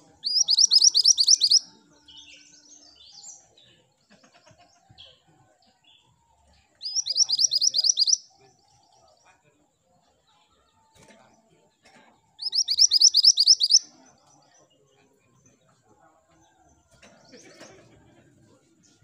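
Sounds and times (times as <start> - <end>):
soft bird chirps: 0.0 - 4.2, 5.8 - 9.5, 12.4 - 15.6
bird whistling rising notes: 0.3 - 1.6.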